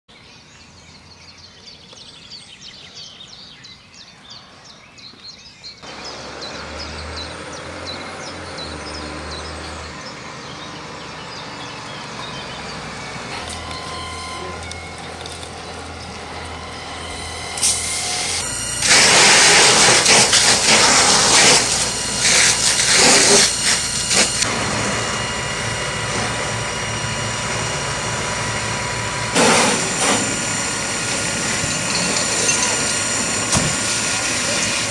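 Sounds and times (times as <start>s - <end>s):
diesel engine running: 5.8s - 34.9s
burning car crackling: 13.0s - 34.9s
hose water hissing: 13.8s - 34.9s.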